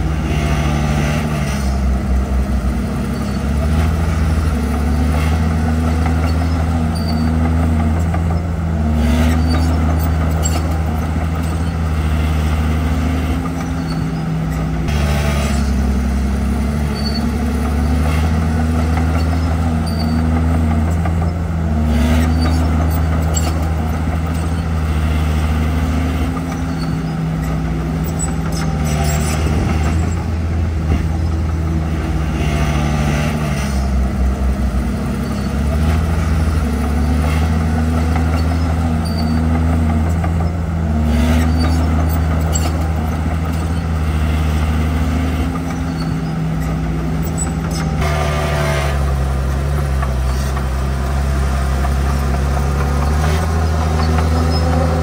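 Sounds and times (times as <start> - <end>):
bulldozer diesel engine under load: 0.0 - 55.0.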